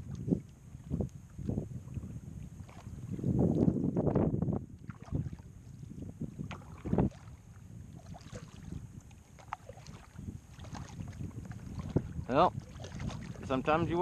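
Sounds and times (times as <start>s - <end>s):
water lapping against kayak hull: 0.0s - 14.0s
wind on microphone: 0.0s - 14.0s
knocks and splashes: 3.6s - 5.5s, 6.4s - 7.4s, 8.0s - 13.6s.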